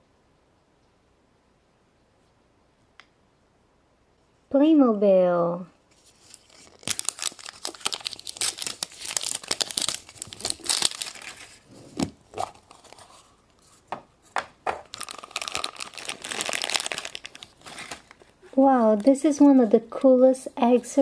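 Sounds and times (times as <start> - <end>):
wrapping crinkling and tearing: 5.9 - 11.7, 12.3 - 13.4, 14.8 - 20.1.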